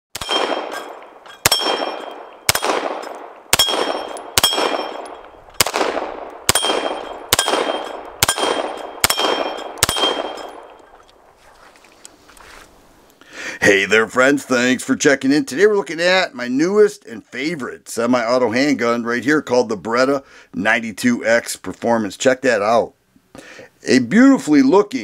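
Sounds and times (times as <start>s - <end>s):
pistol shots: 0.1s - 10.8s
steel plate target ringing: 0.2s - 5.6s, 6.4s - 11.0s.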